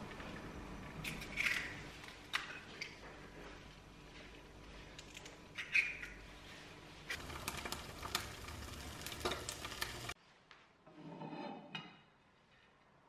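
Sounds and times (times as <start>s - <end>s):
eggs sizzling in oil: 7.1s - 10.2s.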